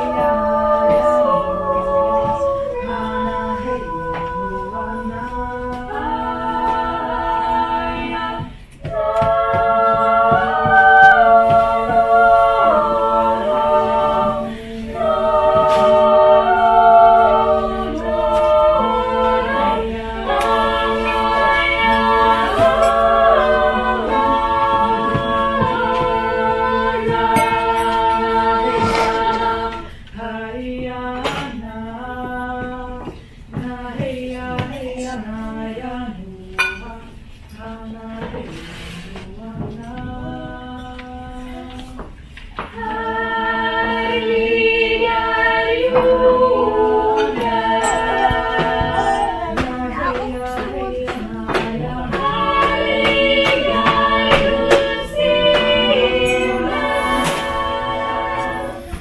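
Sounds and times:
a cappella vocal ensemble singing: 0:00.0 - 0:59.0
glassware clinking: 0:36.6 - 0:36.9.

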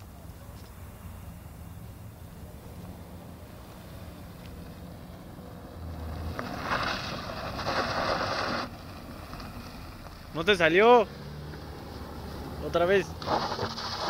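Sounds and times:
car engine revving: 0:03.0 - 0:14.0
tyres spinning on dirt: 0:04.7 - 0:14.0.

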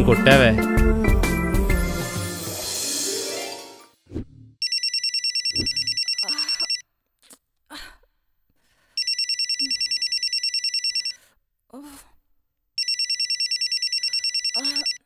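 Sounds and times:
telephone ringing: 0:04.6 - 0:06.8, 0:09.0 - 0:11.2, 0:12.8 - 0:15.0.

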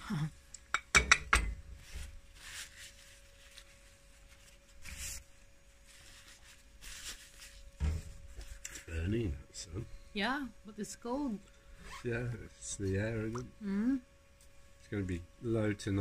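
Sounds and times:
paper tissue rustling: 0:01.8 - 0:09.1.

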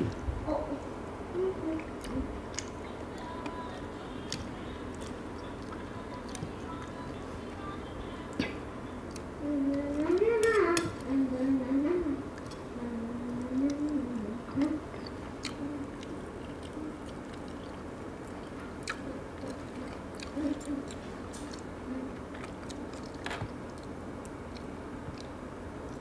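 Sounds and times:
low hums: 0:00.0 - 0:26.0
mouth smacks and clicks: 0:13.7 - 0:21.7
chewing and biting: 0:14.6 - 0:26.0.

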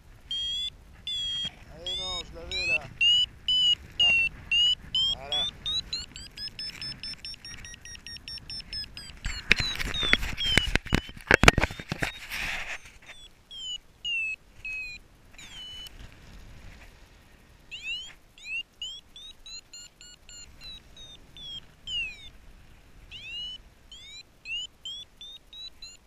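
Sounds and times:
variometer beeping: 0:00.2 - 0:16.0, 0:17.7 - 0:22.4, 0:23.1 - 0:26.0
knocks and rubbing on camera: 0:09.2 - 0:13.2.

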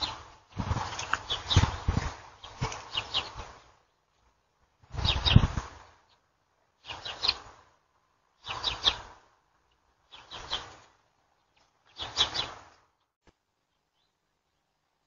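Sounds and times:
bird harsh scratchy call: 0:10.1 - 0:10.9, 0:12.0 - 0:12.6.

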